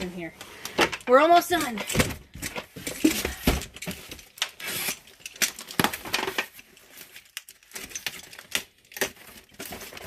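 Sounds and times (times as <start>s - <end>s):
box cutter slitting packing tape: 4.4s - 6.0s.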